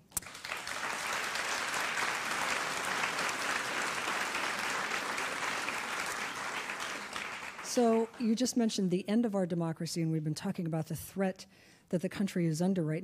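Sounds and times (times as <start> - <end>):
audience applauding: 0.1 - 8.2.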